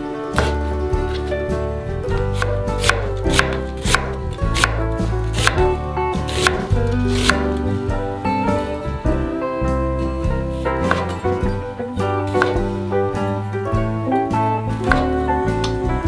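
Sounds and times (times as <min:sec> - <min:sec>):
light background music: 0:00.0 - 0:16.0
knife chopping on wooden board: 0:00.3 - 0:01.2, 0:02.2 - 0:07.6, 0:10.8 - 0:11.2, 0:12.3 - 0:12.7, 0:14.8 - 0:15.2.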